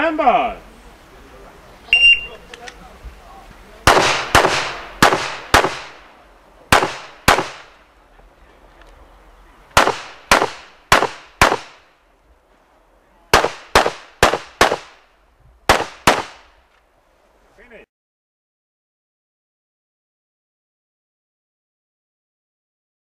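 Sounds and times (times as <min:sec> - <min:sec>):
pistol shots with echo: 0:03.9 - 0:06.1, 0:06.7 - 0:07.8, 0:09.8 - 0:11.9, 0:13.3 - 0:15.0, 0:15.7 - 0:16.5.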